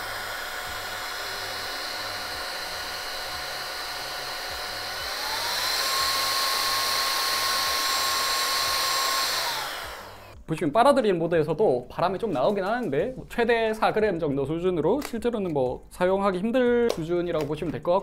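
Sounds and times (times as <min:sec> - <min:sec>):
mini vacuum motor whine: 0:00.0 - 0:10.4.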